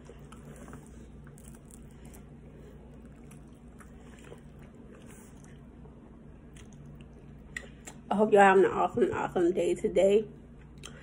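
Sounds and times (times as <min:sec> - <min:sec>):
faint chewing: 0:00.0 - 0:08.0
steady low hum: 0:00.0 - 0:11.0
soft mouth clicks: 0:10.8 - 0:11.0.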